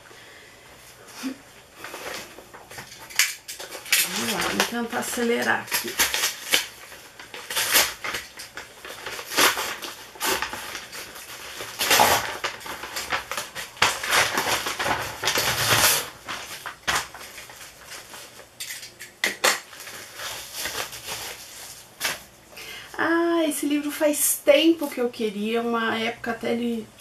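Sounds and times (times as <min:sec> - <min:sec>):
paper rustling and crinkling: 0:01.2 - 0:18.8, 0:19.4 - 0:22.3
scissors snipping paper: 0:03.2 - 0:11.1.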